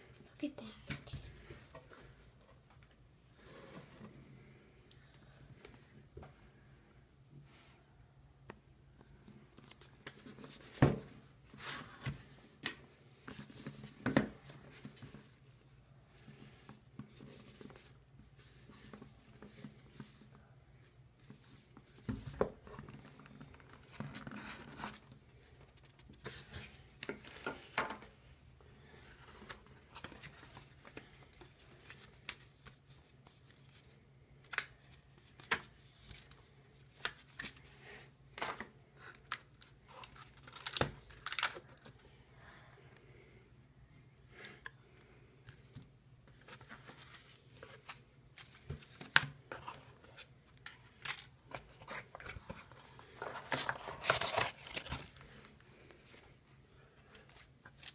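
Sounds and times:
paper rustling: 46.3 - 56.2.

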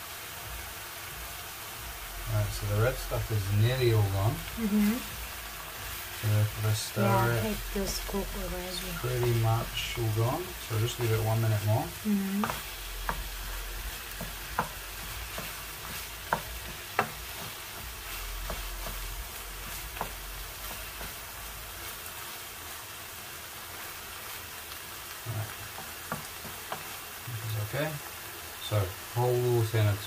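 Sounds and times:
meat sizzling in a frying pan: 0.0 - 30.0
spatula scraping a pan: 12.4 - 22.4.

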